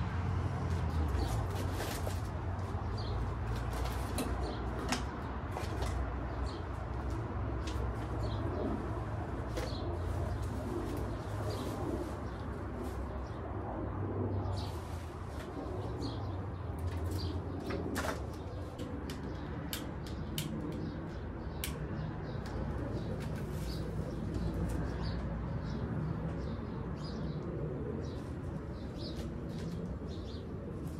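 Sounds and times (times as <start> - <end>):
birds cooing: 3.9 - 19.5
steady low rumble: 6.1 - 30.9.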